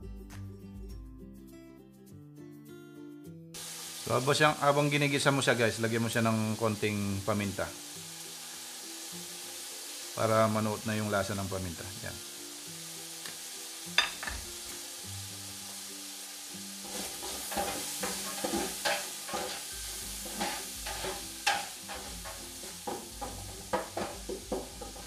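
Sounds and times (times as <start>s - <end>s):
meat sizzling in a frying pan: 3.6s - 25.0s
utensil scraping pan: 16.8s - 25.0s.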